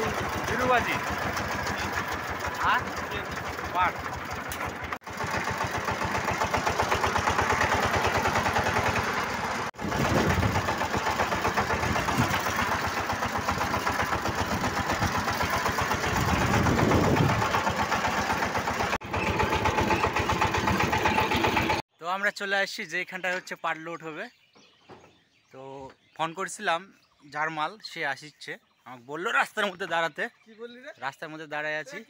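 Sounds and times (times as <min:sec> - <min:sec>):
diesel engine chugging: 0:00.0 - 0:21.8.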